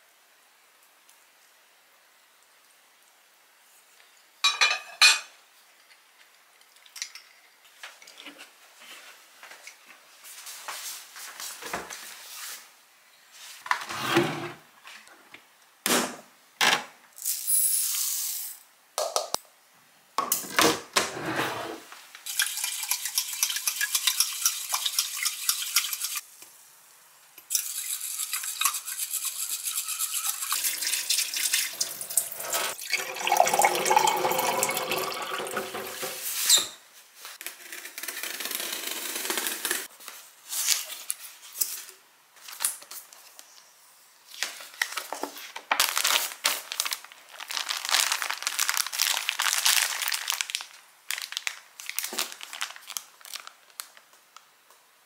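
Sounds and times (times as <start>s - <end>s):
tap water running into steel sink: 30.1s - 36.2s.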